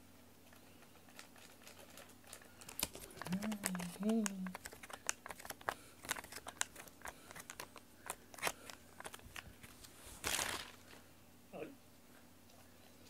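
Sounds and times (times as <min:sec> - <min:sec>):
toy crinkling and clicking: 0:00.4 - 0:09.8.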